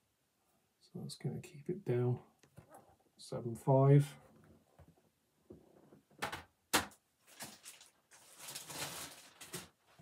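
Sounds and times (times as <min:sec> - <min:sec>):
plastic rustling and sliding: 0:07.2 - 0:10.0.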